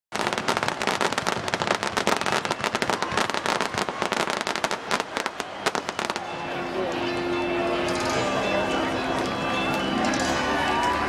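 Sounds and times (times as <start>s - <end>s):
fireworks crackling: 0.1s - 11.0s.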